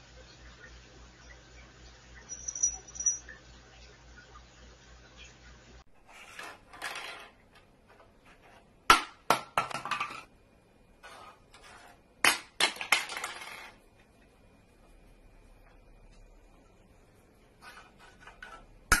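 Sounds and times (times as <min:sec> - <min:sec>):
glass ornaments clinking: 0:02.2 - 0:03.4.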